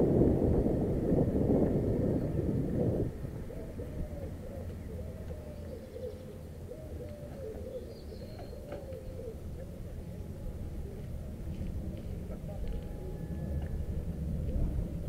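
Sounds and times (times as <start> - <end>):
low background rumble: 0.0 - 15.0
pigeons cooing: 1.8 - 13.5.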